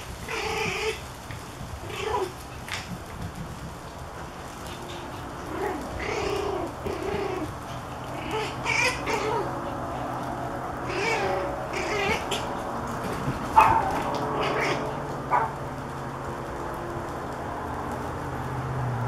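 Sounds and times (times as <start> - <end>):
puppies whining: 0.2 - 1.1, 1.8 - 2.6, 4.5 - 15.5
puppies yipping: 0.2 - 1.1, 4.4 - 15.6.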